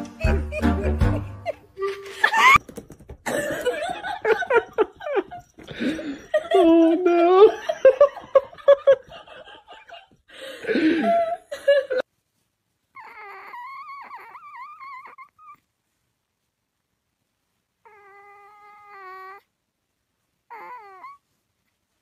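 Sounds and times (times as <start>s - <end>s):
kitten mewing: 13.0s - 15.6s.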